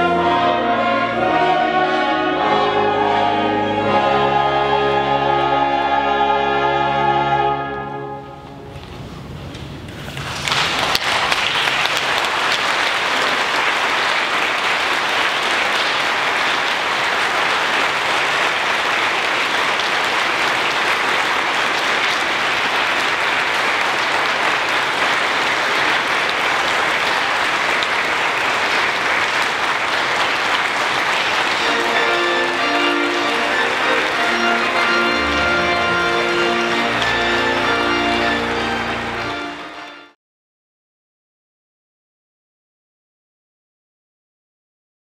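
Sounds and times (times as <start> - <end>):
music: 0.0 - 9.1, 31.2 - 40.2
congregation applauding: 10.0 - 40.2.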